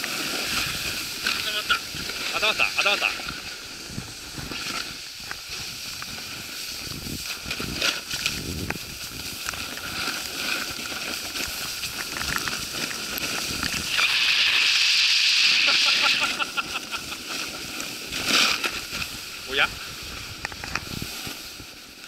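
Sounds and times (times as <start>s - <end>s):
snowboard scraping on snow: 0.0s - 22.0s
steady hiss: 0.0s - 22.0s.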